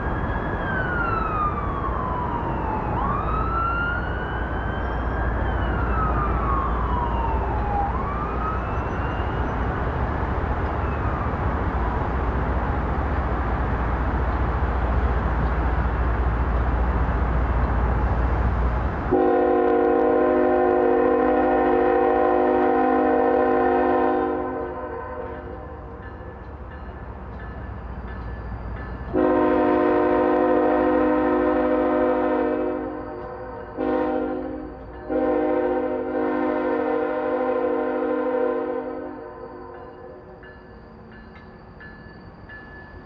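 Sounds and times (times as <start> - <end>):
siren wailing: 0.0 - 11.7
locomotive air horn blast: 19.1 - 25.4, 29.1 - 33.1, 33.8 - 39.3.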